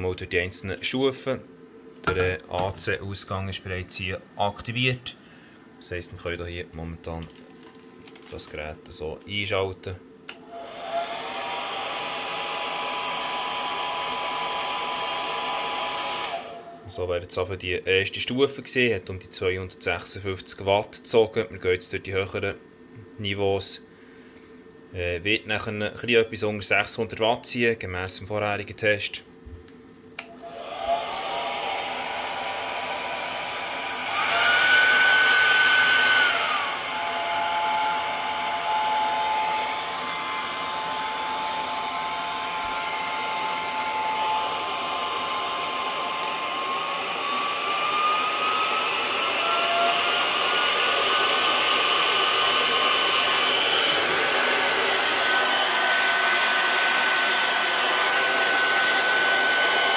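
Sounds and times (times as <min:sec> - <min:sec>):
hair dryer running: 0:10.3 - 0:16.8, 0:30.2 - 0:59.9.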